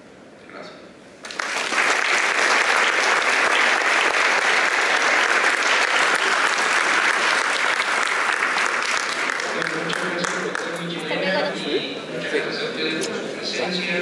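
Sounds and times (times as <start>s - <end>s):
audience applauding: 1.2s - 10.7s.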